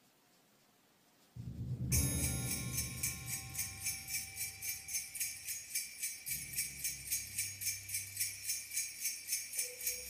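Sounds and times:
low bass notes: 1.4 - 4.7
jingle bells shaking: 1.9 - 10.0.

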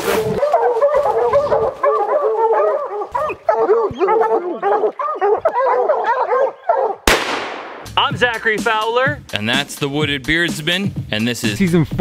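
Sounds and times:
dogs barking rapidly: 0.2 - 7.0.

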